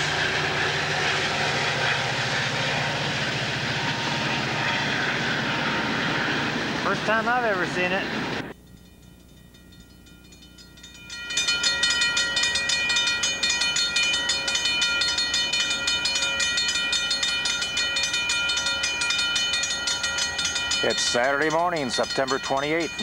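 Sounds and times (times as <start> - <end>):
railroad crossing bell ringing: 0.0 - 23.0.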